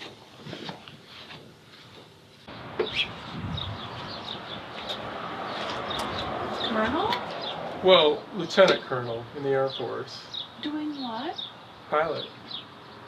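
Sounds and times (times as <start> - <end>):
outdoor hush: 0.0 - 13.0
small birds chirping: 2.4 - 13.0.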